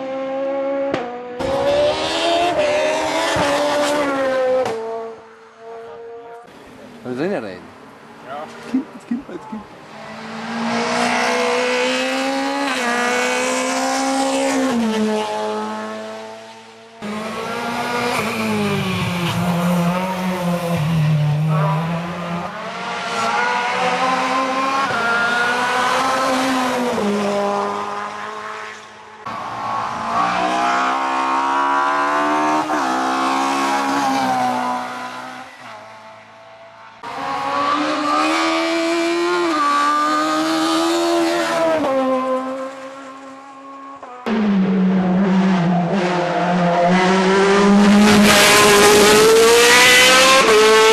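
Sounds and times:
race car engines revving: 0.0s - 50.9s.

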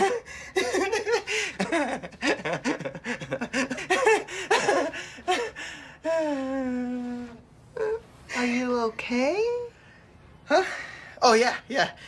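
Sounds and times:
man laughing hard: 0.0s - 5.6s.

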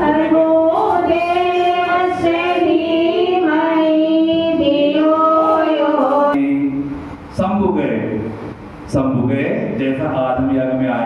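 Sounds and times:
woman singing into a microphone: 0.0s - 6.4s.

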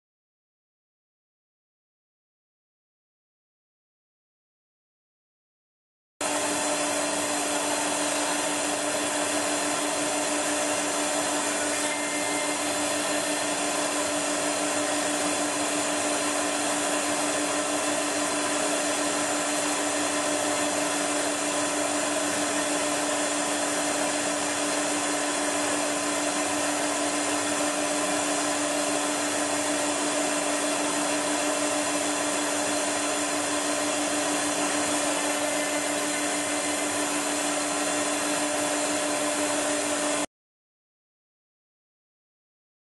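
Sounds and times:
electric motor whirring: 6.8s - 39.9s.

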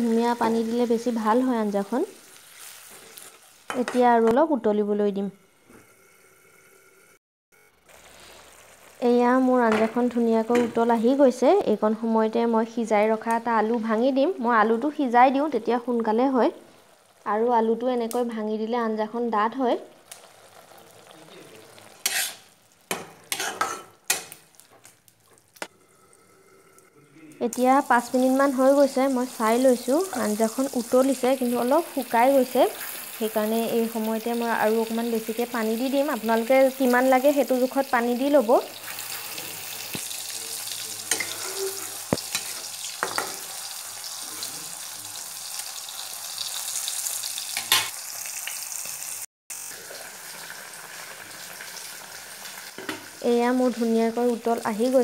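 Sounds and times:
curry bubbling and sizzling: 0.0s - 4.0s, 7.8s - 11.4s, 14.6s - 17.8s, 19.5s - 27.0s, 27.6s - 55.0s
spatula scraping pan: 21.8s - 24.4s, 41.1s - 43.5s.

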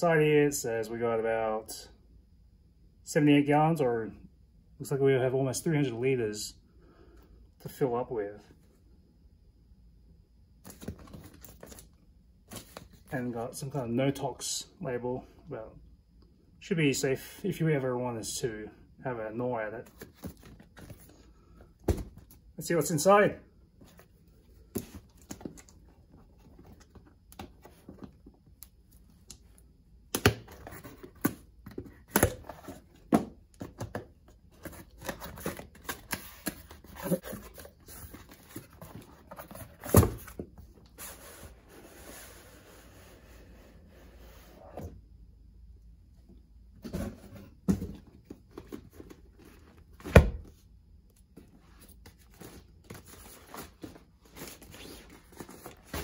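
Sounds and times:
vinyl rustling: 30.2s - 42.9s, 51.2s - 56.0s.

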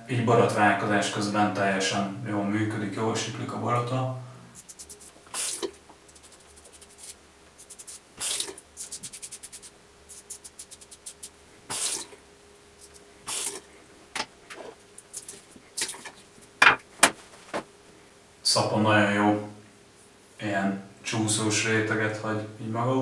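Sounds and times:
razor scraping stubble: 4.6s - 12.2s, 12.8s - 13.7s, 14.6s - 16.6s.

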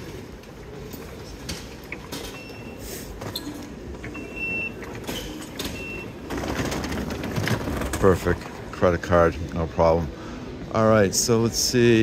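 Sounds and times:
station concourse hubbub: 0.0s - 12.0s
card reader beeps: 2.2s - 3.2s, 3.9s - 6.3s.

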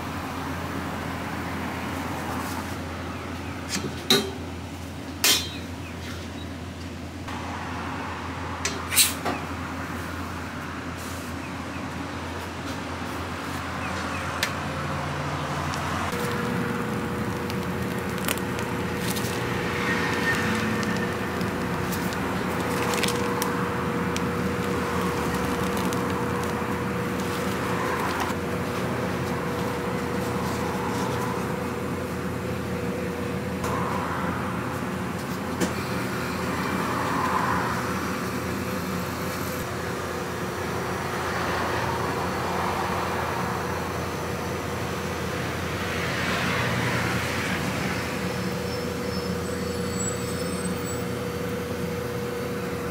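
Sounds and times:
kitchen equipment hum and hiss: 0.0s - 52.9s
higher steady hum: 14.7s - 45.9s.

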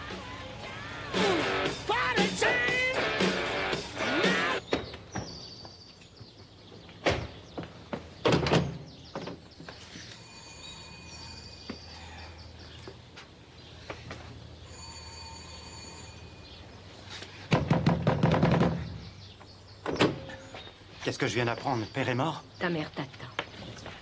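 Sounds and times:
door thuds and knocks: 7.0s - 9.4s, 17.5s - 18.8s
high ringing tone: 10.0s - 12.2s, 14.6s - 16.8s.

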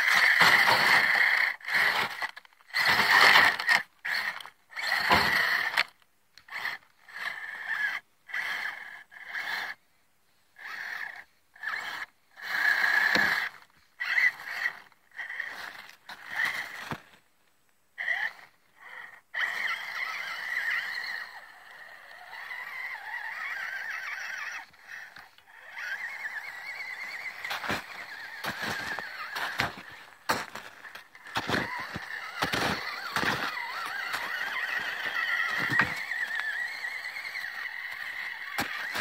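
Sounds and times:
small electric motor whining: 0.0s - 9.8s, 10.6s - 17.1s, 18.0s - 39.0s.

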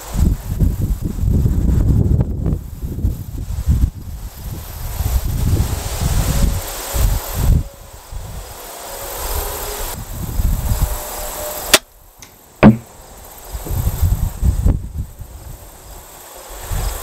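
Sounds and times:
wind buffeting microphone: 0.0s - 8.5s, 9.9s - 11.1s, 12.6s - 16.0s
crossbow shot crack: 11.7s - 13.0s
sharp thwack: 12.6s - 12.9s.

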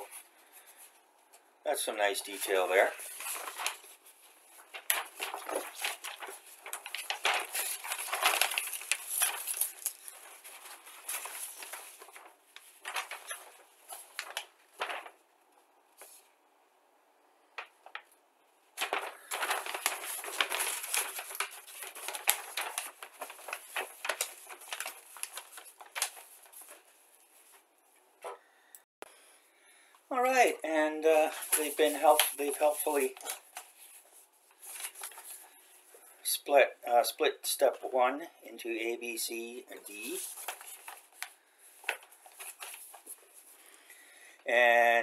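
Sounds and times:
paper sheet crinkling and rustling: 1.9s - 15.3s, 17.6s - 18.1s, 18.8s - 28.5s, 30.8s - 36.1s, 39.3s - 44.1s.

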